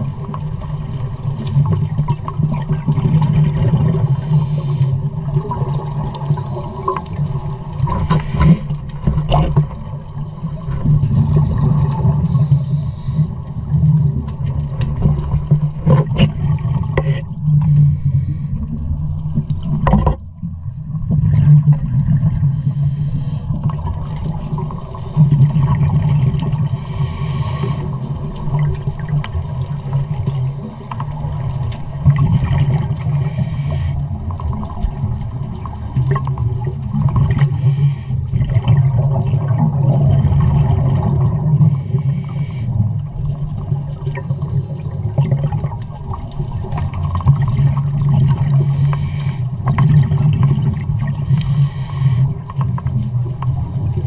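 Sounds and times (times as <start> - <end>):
underwater bubbles: 0.0 - 54.0
scuba diver breathing through regulator: 4.0 - 5.1, 6.2 - 7.3, 7.9 - 8.8, 12.2 - 13.5, 17.0 - 18.6, 22.4 - 23.6, 26.6 - 28.5, 33.0 - 34.0, 37.3 - 38.3, 41.6 - 42.8, 44.2 - 45.2, 48.4 - 49.6, 51.1 - 52.4.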